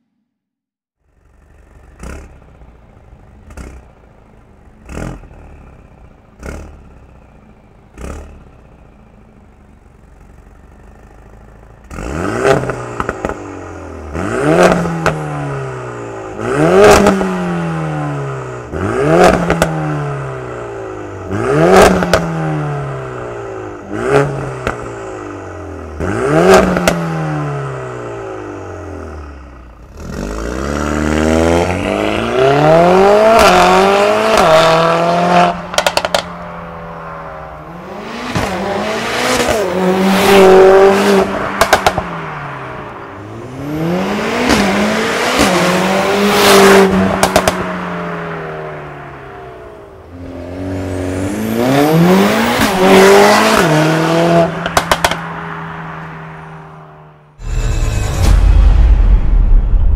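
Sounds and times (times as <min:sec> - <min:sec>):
car engine revving: 0:01.2 - 0:55.2, 0:57.3 - 0:59.9
car accelerating hard: 0:11.9 - 0:23.3, 0:29.9 - 0:55.2.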